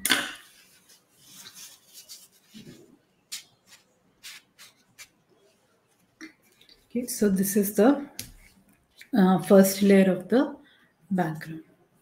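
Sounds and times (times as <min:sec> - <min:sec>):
brush strokes on paper: 0:00.5 - 0:06.1
scratchy rubbing on paper: 0:00.6 - 0:05.2.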